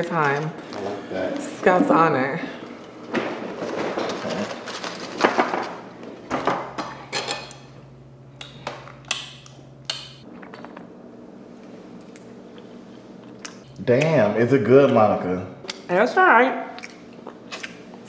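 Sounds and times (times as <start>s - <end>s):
cutlery clinking on dishes: 7.1s - 7.6s.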